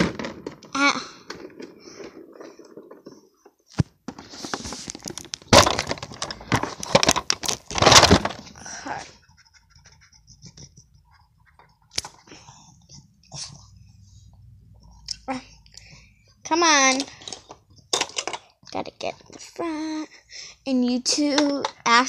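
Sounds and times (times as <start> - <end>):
plastic toys clicking and knocking: 0.0 - 13.2, 14.8 - 22.0
rustling and rubbing: 1.5 - 15.1.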